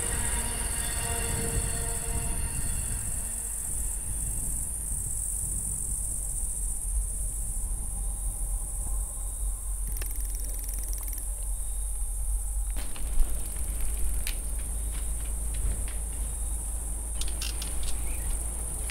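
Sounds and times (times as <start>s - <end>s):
crickets chirping: 0.0s - 18.9s
low steady rumble: 0.0s - 18.9s.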